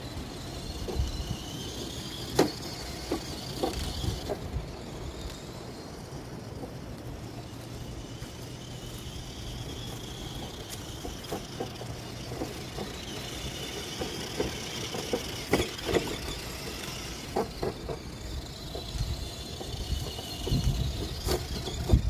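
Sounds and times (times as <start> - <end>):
noisy rumble: 0.0 - 22.0
toy truck motor whine: 0.0 - 22.0
sharp knocks and clatters: 10.4 - 18.9.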